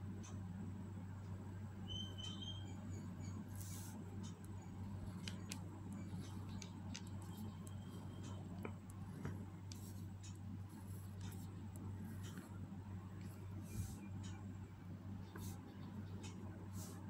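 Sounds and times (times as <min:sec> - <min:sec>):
pen scratching on paper: 0:03.5 - 0:04.0, 0:09.0 - 0:12.6, 0:15.3 - 0:15.6.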